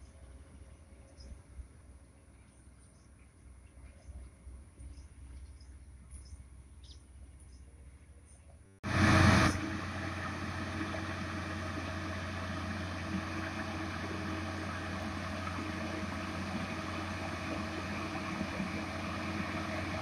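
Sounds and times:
diesel engine humming: 8.8s - 20.0s.

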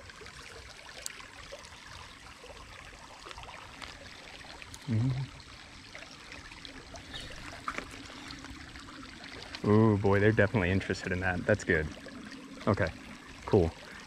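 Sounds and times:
creek water trickling over gravel: 0.0s - 14.0s
man humming: 4.8s - 5.3s.

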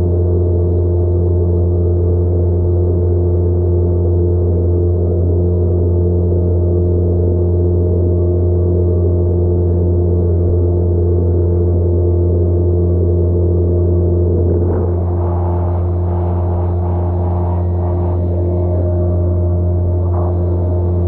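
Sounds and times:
boat engine droning: 13.8s - 21.0s.

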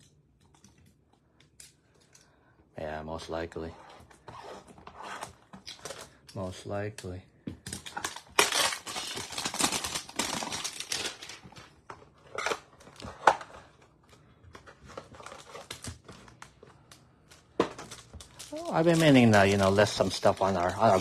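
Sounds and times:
cardboard packaging tearing: 7.8s - 11.6s, 17.9s - 21.0s.

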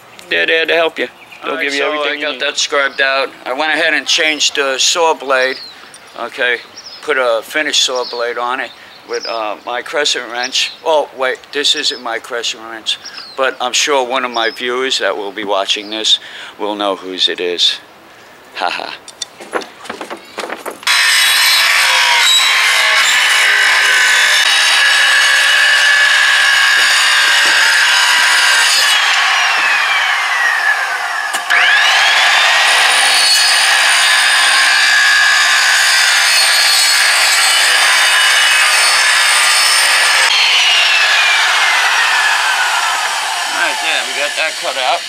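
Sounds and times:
circular saw cutting paneling: 19.2s - 45.0s.

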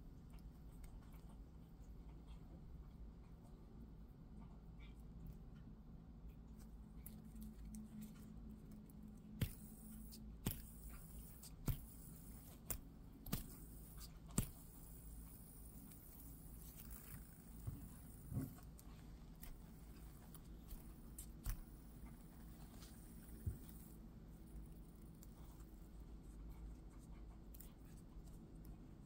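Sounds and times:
faint steady hum: 0.0s - 29.0s
bead spinner clicking: 9.4s - 22.4s.

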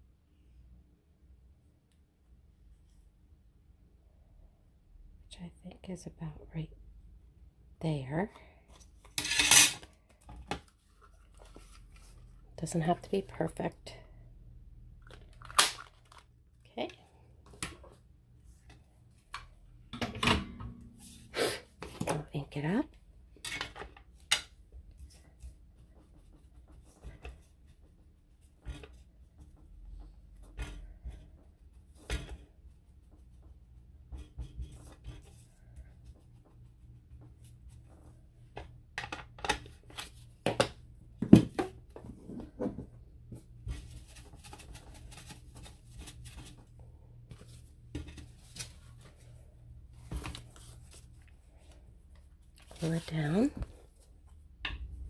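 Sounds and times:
paper rustling: 10.7s - 12.4s, 43.7s - 46.6s.

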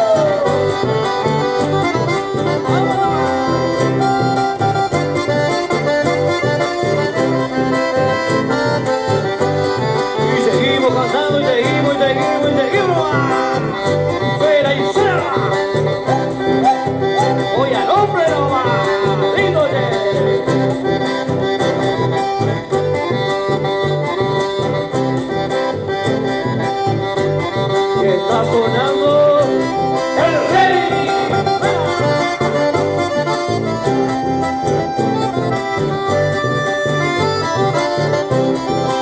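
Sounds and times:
accordion melody: 0.0s - 39.0s
acoustic guitar: 0.0s - 39.0s
electric bass line: 0.0s - 39.0s.

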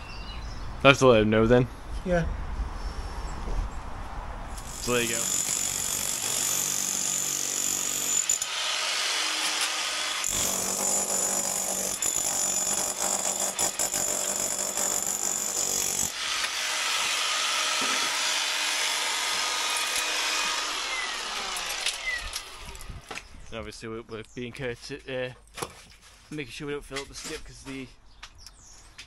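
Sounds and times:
rotary hammer chiselling: 4.6s - 18.8s
crumbling masonry: 10.2s - 16.2s.

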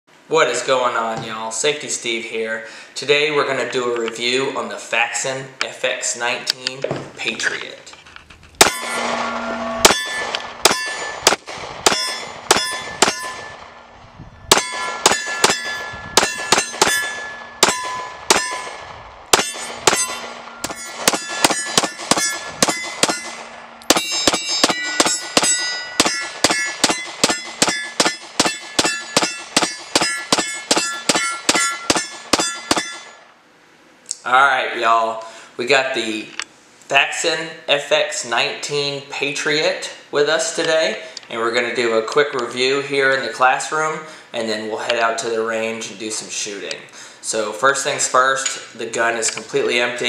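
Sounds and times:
pistol shots: 8.6s - 13.8s, 14.5s - 33.2s
steel targets ringing: 8.6s - 13.9s, 14.5s - 33.3s.

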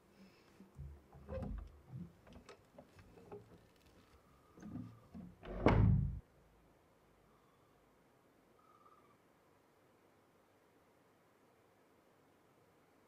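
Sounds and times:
faint clicks and handling: 0.1s - 5.3s
door shutting with heavy thud: 4.7s - 6.2s.

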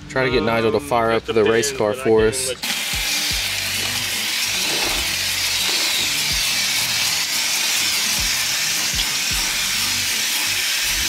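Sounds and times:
water spraying from hose nozzle: 2.6s - 11.0s.

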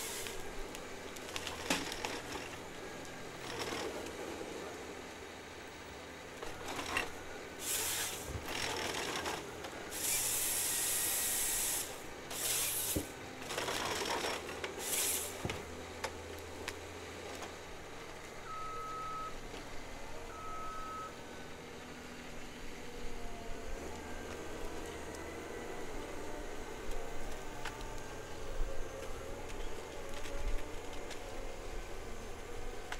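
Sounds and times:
machine hissing: 0.0s - 0.5s, 7.6s - 13.2s, 14.8s - 15.5s
forestry machine humming: 0.0s - 32.9s
short electronic beeps: 18.5s - 19.4s, 20.3s - 21.2s.

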